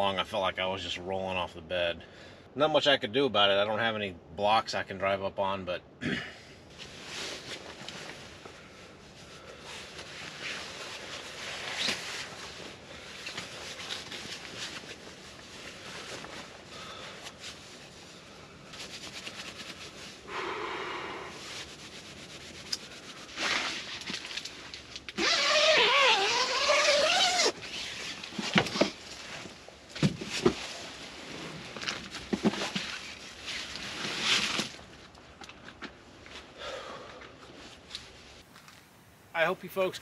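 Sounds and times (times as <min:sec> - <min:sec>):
loud wavering pitched call: 0:20.3 - 0:21.5.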